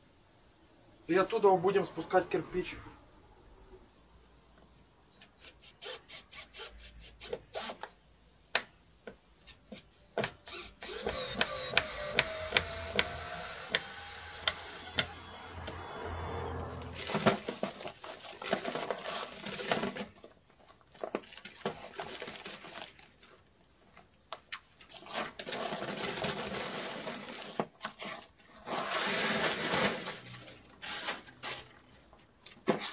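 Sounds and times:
scraping with rising tone: 1.0 - 4.0, 14.3 - 17.4.

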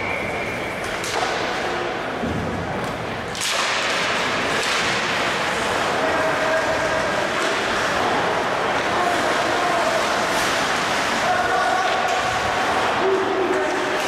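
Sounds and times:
hockey stick and puck knocks: 2.2 - 5.4
skates on ice: 2.7 - 14.0
sharp crack: 2.8 - 5.6.

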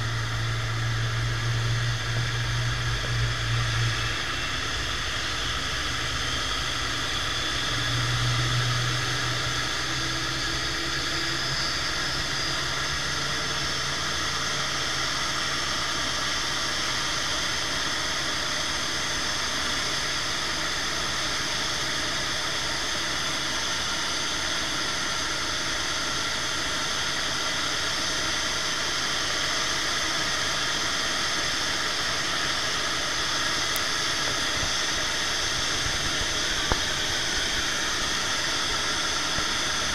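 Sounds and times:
low hum: 0.0 - 15.2, 33.7 - 39.9
jet engines whining: 0.0 - 39.9.

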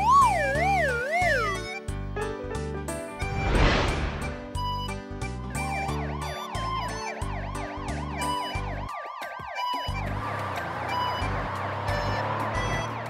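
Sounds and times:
cartoon siren warble: 0.0 - 1.6
children's background music: 0.0 - 13.0.

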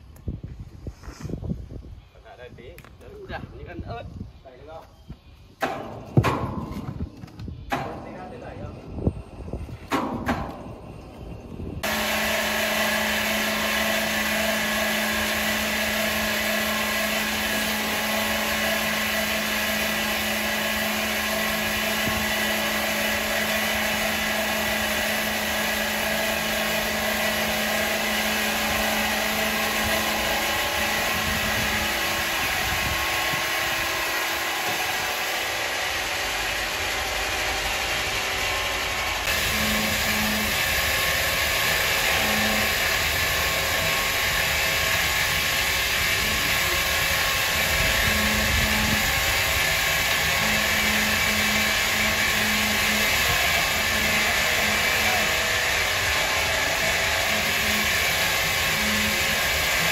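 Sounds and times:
steady hum: 3.6 - 59.9
powered wood saw running: 11.8 - 59.9.

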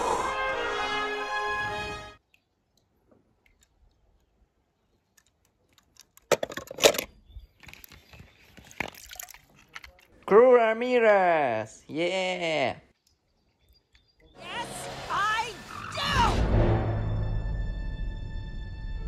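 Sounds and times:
music: 0.0 - 2.2, 14.4 - 19.0.

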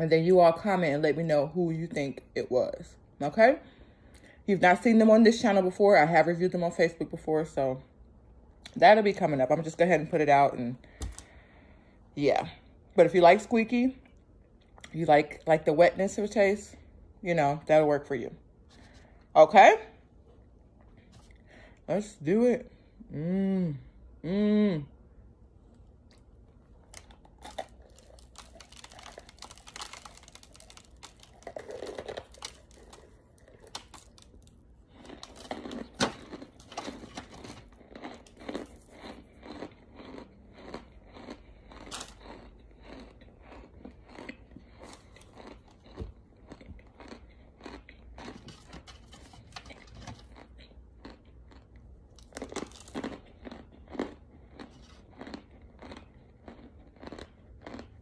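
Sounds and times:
crisp chewing crunches: 25.7 - 58.0.

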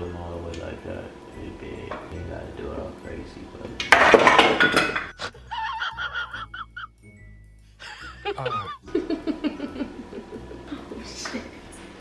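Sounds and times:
music with high wavering voice: 5.1 - 12.0.

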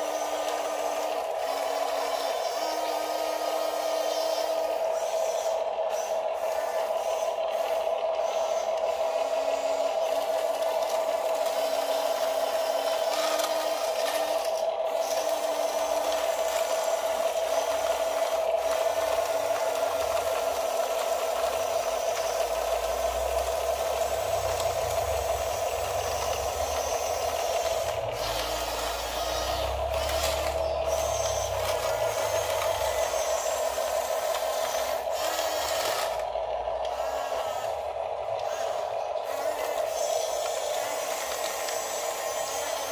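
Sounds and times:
toy bulldozer motors whining: 0.0 - 42.9.

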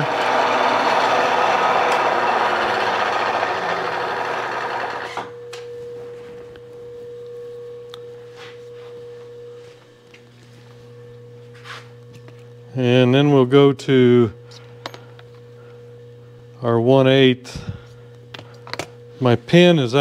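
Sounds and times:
milling machine drilling metal: 0.0 - 5.3
spindle humming: 0.0 - 13.4.

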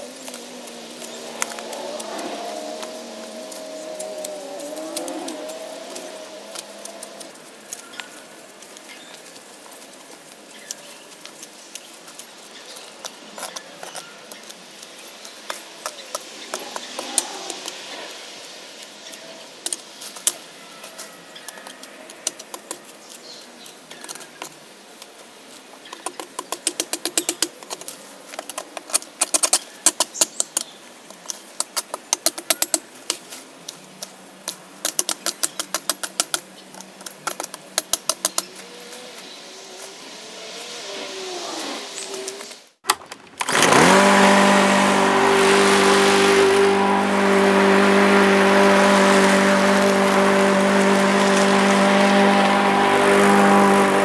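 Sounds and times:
branches snapping: 0.1 - 9.6, 42.3 - 54.0
loppers snipping brush: 42.9 - 54.0.

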